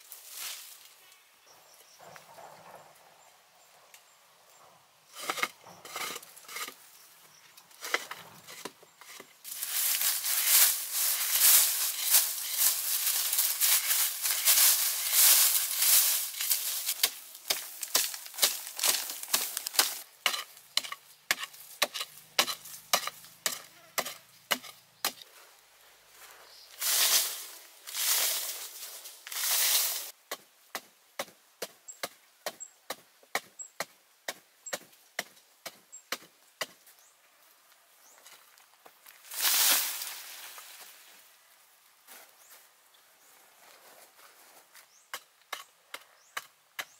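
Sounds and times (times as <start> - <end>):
scraping and scooping loose earth: 4.5 - 30.2, 38.0 - 41.4, 42.0 - 46.9
digging pole striking ground: 11.2 - 25.2.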